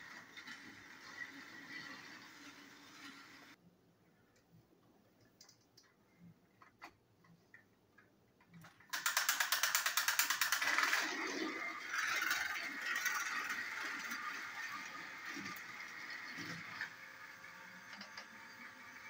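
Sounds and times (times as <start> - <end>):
toy train gear clatter: 8.6 - 19.0.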